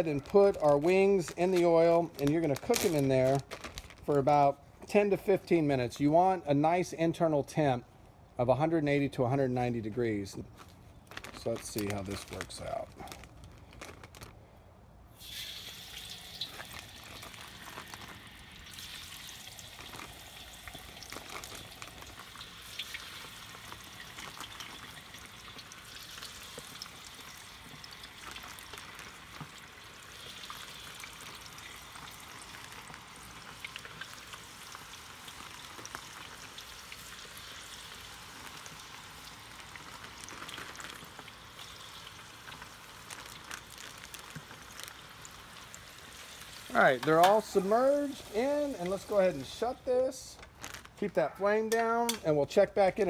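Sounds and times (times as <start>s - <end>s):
chicken wings deep-frying in oil: 0.0s - 3.5s, 15.1s - 49.9s.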